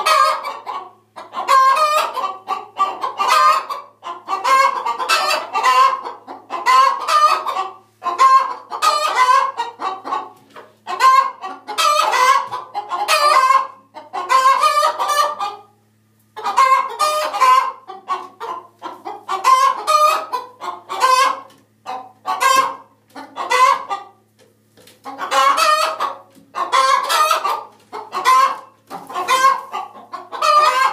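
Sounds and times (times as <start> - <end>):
chickens clucking loudly: 0.0 - 30.9.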